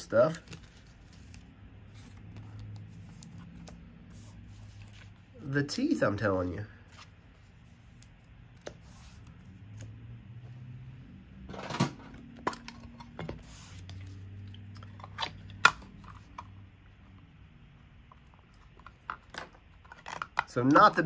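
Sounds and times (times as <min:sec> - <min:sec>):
cards and wrappers clicking and rustling: 0:00.0 - 0:04.0, 0:18.1 - 0:21.0.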